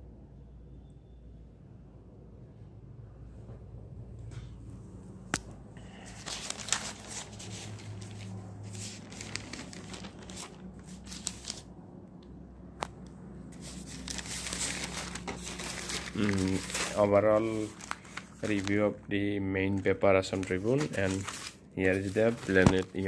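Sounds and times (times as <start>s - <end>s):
newspaper pages rustling: 5.8s - 11.7s, 13.5s - 23.0s.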